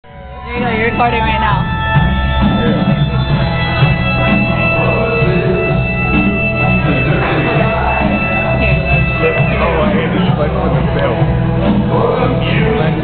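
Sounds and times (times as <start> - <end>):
loud rock music with guitar: 0.0 - 13.0
pulsing bass beat: 0.0 - 13.0.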